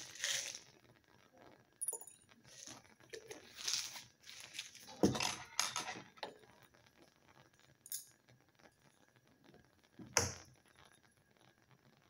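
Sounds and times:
glass lab gear clinking: 0:01.8 - 0:02.7.

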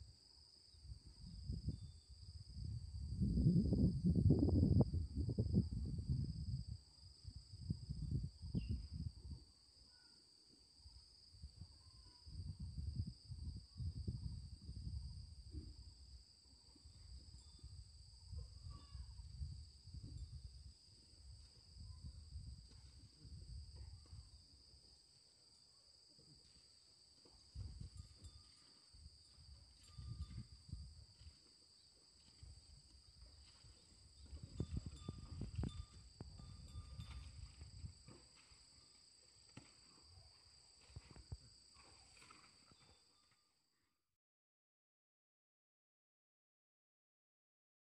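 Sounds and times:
insect drone: 0:00.0 - 0:43.7
faint chirps: 0:09.8 - 0:11.0
high-pitched insect drone: 0:16.9 - 0:20.8, 0:27.6 - 0:39.0.

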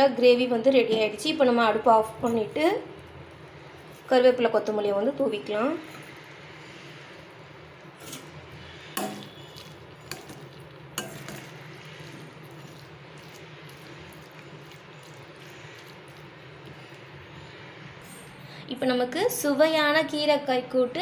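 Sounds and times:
spoon stirring thick curry: 0:07.8 - 0:17.9
spoon clinking against pan: 0:09.0 - 0:10.4, 0:11.0 - 0:11.6.

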